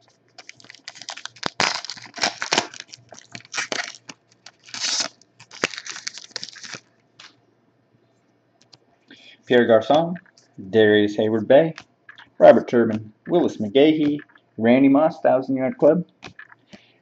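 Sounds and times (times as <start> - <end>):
foil wrapper tearing and crinkling: 0.4 - 7.3.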